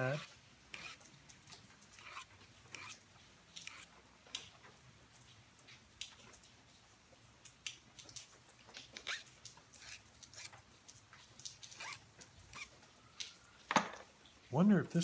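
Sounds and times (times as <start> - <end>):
metal punch rasping on file: 0.0 - 1.0, 2.0 - 3.0.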